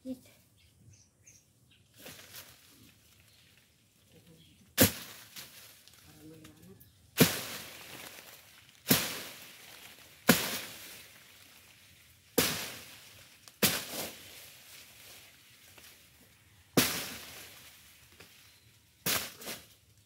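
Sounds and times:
blade chopping weeds: 0:04.8 - 0:05.9, 0:07.2 - 0:11.6, 0:12.3 - 0:16.0, 0:16.7 - 0:18.4, 0:19.0 - 0:19.8.

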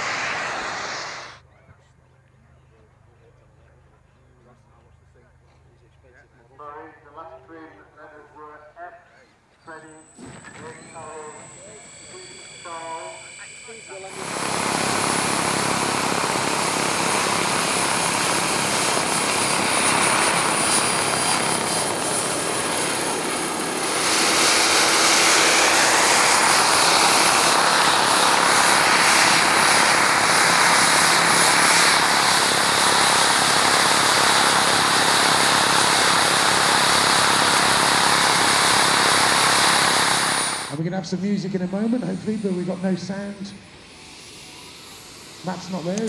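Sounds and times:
loud rushing noise: 0:00.0 - 0:01.4, 0:23.7 - 0:34.8
model jet turbine whine: 0:00.0 - 0:01.4, 0:09.7 - 0:46.0.

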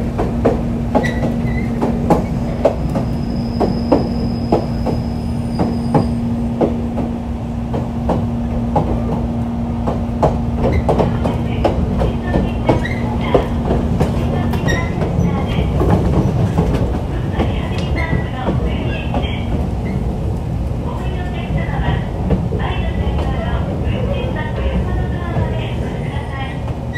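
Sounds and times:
train rumble: 0:00.0 - 0:26.9
wheels clicking over rail joints: 0:07.7 - 0:20.8.

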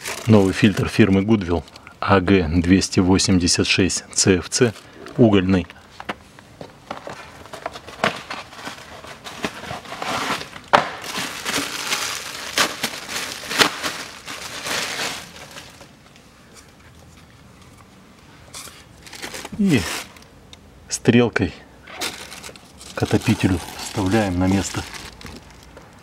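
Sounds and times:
packaging crinkling and rustling: 0:00.0 - 0:01.8, 0:06.7 - 0:17.9, 0:18.5 - 0:20.2, 0:21.9 - 0:26.0.

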